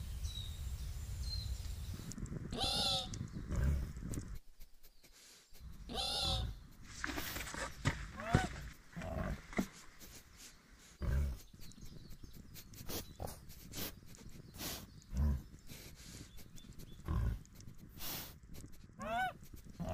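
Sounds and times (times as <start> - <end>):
faint clicks and rustles: 1.6 - 2.5, 3.1 - 5.9, 6.6 - 19.9
wild boar grunting: 5.6 - 11.8, 12.9 - 19.9.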